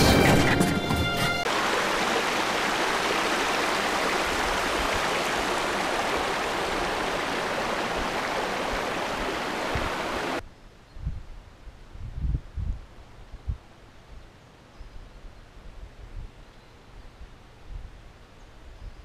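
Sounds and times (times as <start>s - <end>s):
water rushing over rocks: 1.5s - 10.4s.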